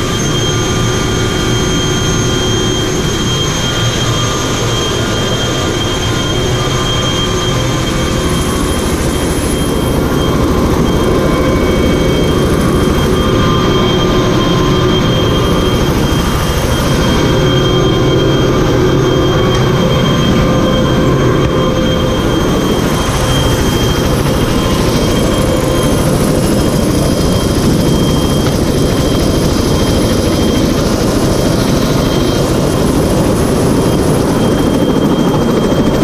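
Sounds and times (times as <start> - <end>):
helicopter turbine whine and rotors: 0.0 - 36.0.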